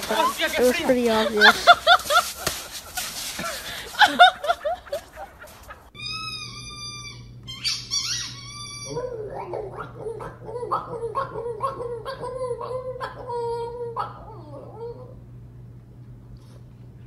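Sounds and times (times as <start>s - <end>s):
low steady hum: 0.0s - 17.0s
dog whining: 4.6s - 15.2s
dog grumbling: 8.8s - 15.1s.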